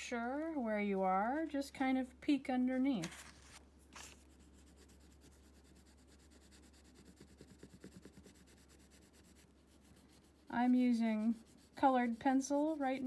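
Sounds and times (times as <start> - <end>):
colored pencil scratching on paper: 2.6 - 13.0.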